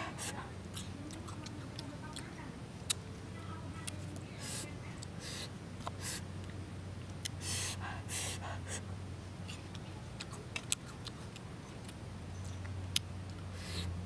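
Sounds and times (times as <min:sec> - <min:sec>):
mouth clicks while chewing: 0:00.2 - 0:03.0, 0:09.4 - 0:13.9
hissing intakes of breath: 0:04.4 - 0:06.3, 0:07.4 - 0:08.9, 0:13.6 - 0:13.9.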